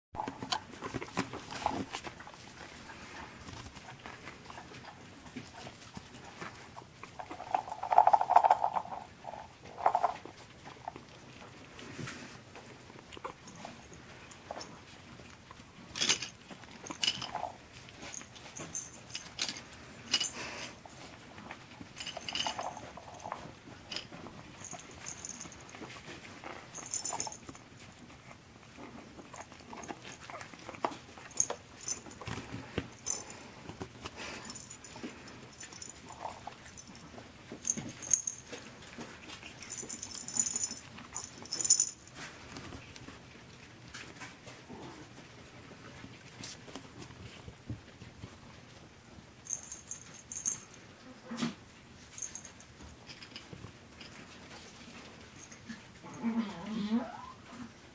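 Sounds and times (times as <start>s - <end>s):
plastic toys clicking and rattling: 7.0s - 11.0s, 15.9s - 21.0s, 21.8s - 25.9s, 26.7s - 27.6s, 29.4s - 33.4s, 34.2s - 38.6s, 39.6s - 42.8s.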